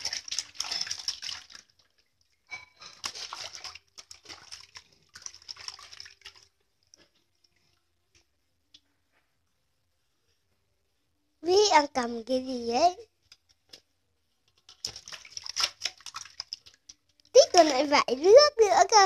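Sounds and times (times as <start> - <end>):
water splashing in metal basin: 0.0 - 6.6, 14.6 - 18.2
water dripping: 0.0 - 8.9, 14.4 - 18.2.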